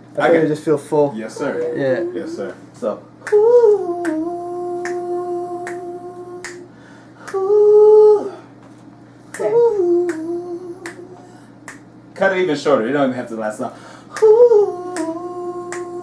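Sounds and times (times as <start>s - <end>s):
person singing long wordless notes: 3.2s - 8.5s, 9.4s - 11.2s, 14.1s - 16.0s
finger snaps: 4.0s - 7.5s, 9.3s - 11.9s, 14.2s - 16.0s.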